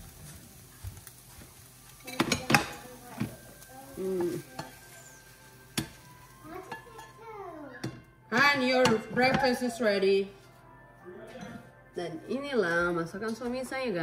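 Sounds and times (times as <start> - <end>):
faint sizzle: 0.0 - 10.6.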